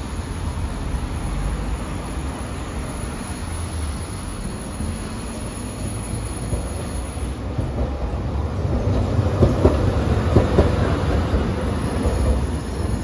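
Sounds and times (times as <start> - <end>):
tram rumbling past: 0.0 - 13.0
tram wheels clacking: 0.0 - 13.0.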